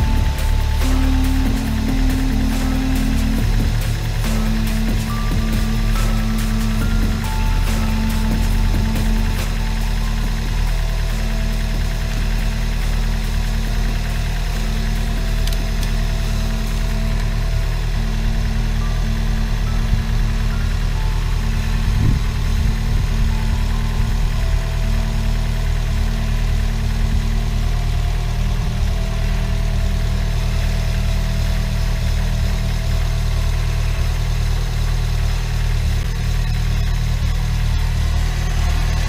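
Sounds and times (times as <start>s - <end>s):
car engine idling: 0.0s - 39.0s.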